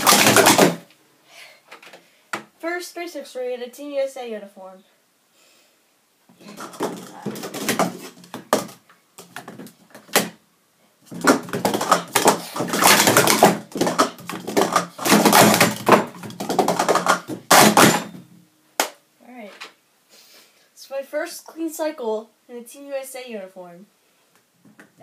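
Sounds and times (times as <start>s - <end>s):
plastic cups clattering: 0.0s - 0.8s, 6.4s - 10.3s, 11.1s - 18.1s.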